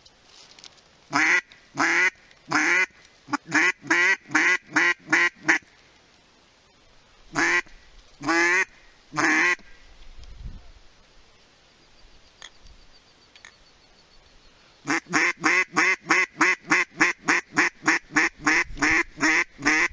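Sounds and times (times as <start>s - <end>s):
duck call quacks: 1.1s - 5.6s, 7.4s - 9.6s, 14.9s - 19.9s.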